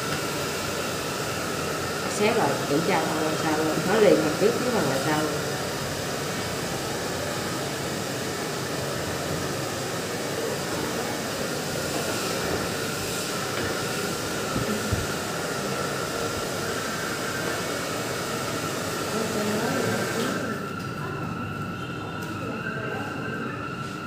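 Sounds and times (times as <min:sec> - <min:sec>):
air blower rushing hum: 0:00.0 - 0:21.7.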